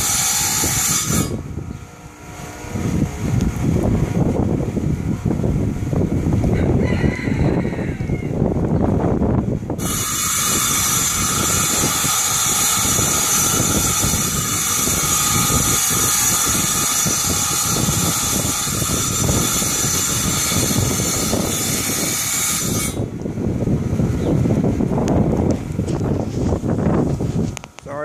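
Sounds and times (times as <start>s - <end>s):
tile saw whining: 0.0s - 1.4s, 9.8s - 23.1s.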